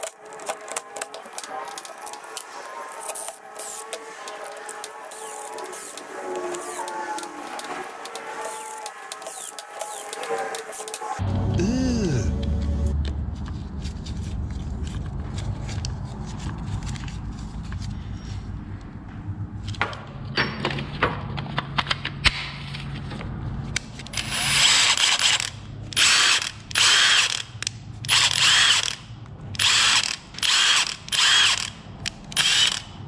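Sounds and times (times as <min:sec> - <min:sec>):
impact wrench motor whining: 0:00.0 - 0:11.2, 0:24.1 - 0:33.0.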